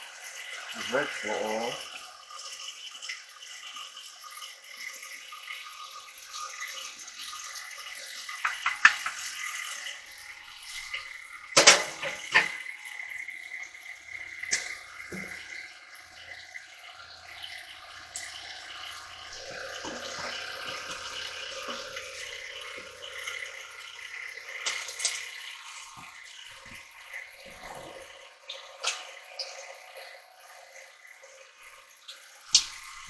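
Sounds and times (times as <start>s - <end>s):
stand mixer kneading dough: 19.3s - 22.0s, 22.7s - 22.9s.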